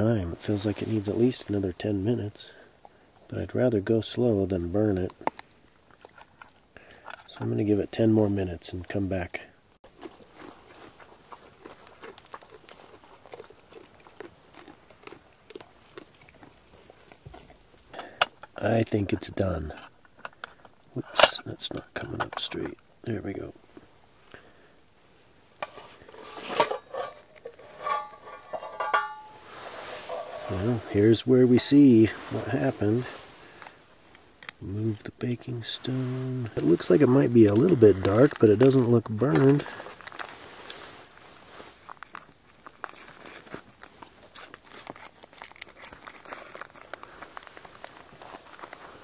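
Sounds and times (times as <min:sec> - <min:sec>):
crinkling: 0:04.8 - 0:08.0, 0:09.8 - 0:24.5, 0:25.6 - 0:49.0
metal pot and lid clinking: 0:26.4 - 0:29.5
metallic ringing: 0:27.8 - 0:29.5.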